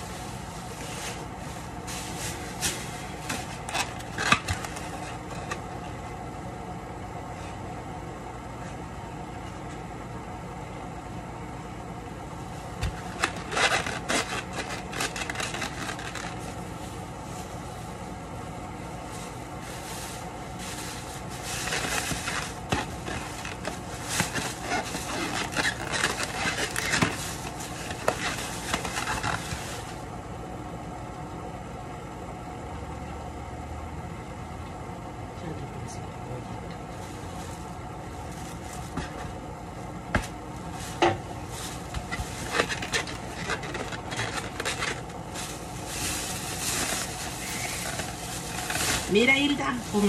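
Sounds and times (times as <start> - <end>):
plastic bag crinkling: 0.0 - 5.7, 12.6 - 17.7, 19.1 - 30.0, 40.7 - 50.0
steady low hum: 0.0 - 50.0.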